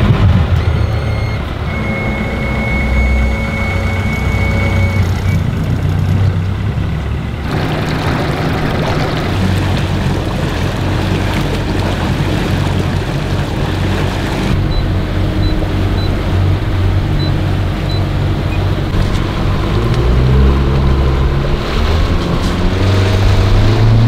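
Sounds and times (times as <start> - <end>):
outboard engine humming: 0.0 - 24.0
water rushing: 0.0 - 24.0
high beep: 0.5 - 5.4.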